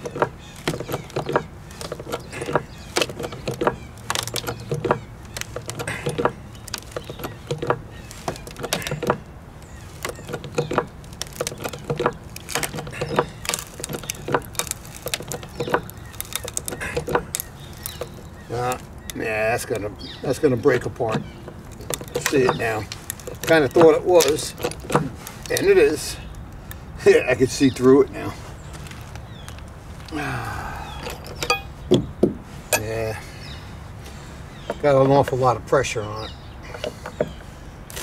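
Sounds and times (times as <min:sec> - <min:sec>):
bottle jack pumping: 0:00.0 - 0:19.2, 0:21.1 - 0:25.7, 0:31.0 - 0:32.1
wood creaking and cracking: 0:00.0 - 0:38.0.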